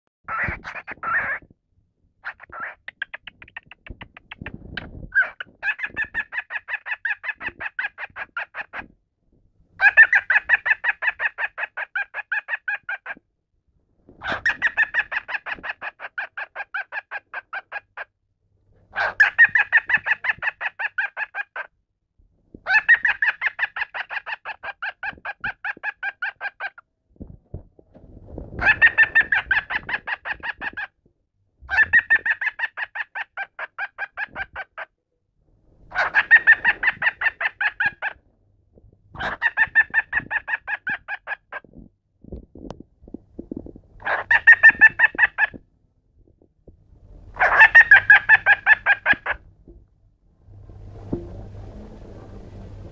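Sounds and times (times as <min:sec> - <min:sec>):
cockatiel mimicking laughter: 0:28.6 - 0:30.9.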